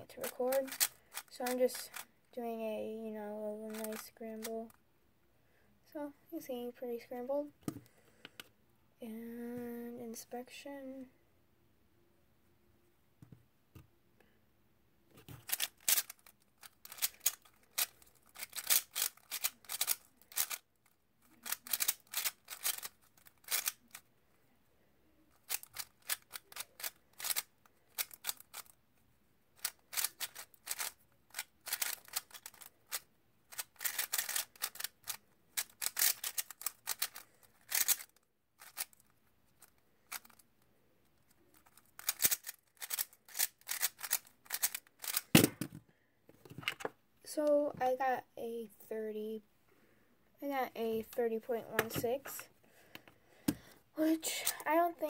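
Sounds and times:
puzzle cube plastic clacking: 0.1 - 2.2, 3.7 - 4.8, 15.2 - 24.1, 25.3 - 28.8, 29.6 - 45.8.

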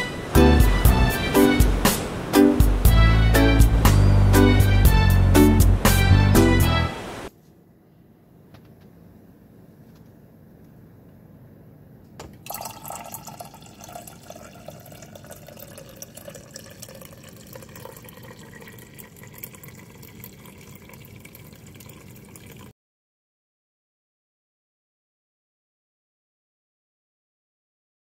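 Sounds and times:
coffee pouring into mug: 12.3 - 22.7.

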